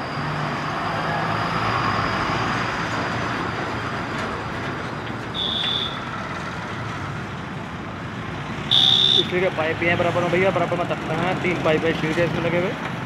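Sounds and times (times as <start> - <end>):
road traffic passing: 0.0 - 13.0
truck passing close: 0.0 - 13.0
short high beep: 5.4 - 6.1, 8.7 - 9.3.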